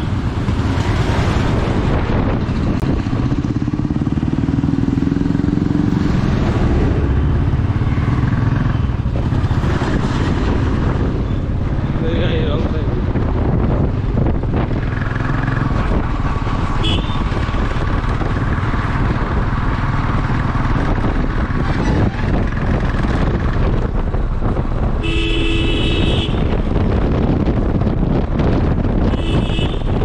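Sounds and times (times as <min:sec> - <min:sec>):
vehicle moving: 0:00.0 - 0:30.0
wind rumble on microphone: 0:00.0 - 0:30.0
car horn honking: 0:16.8 - 0:17.3, 0:25.0 - 0:26.6, 0:29.0 - 0:30.0.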